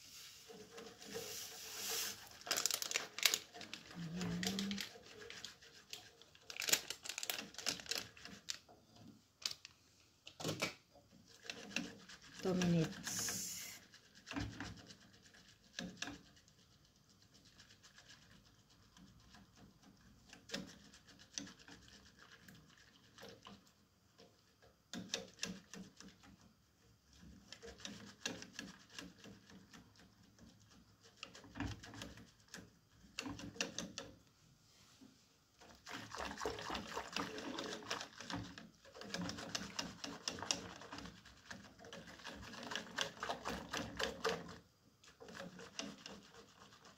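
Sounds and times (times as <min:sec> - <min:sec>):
whisk scraping a metal saucepan: 0:00.0 - 0:06.5, 0:11.1 - 0:23.7, 0:35.6 - 0:46.9.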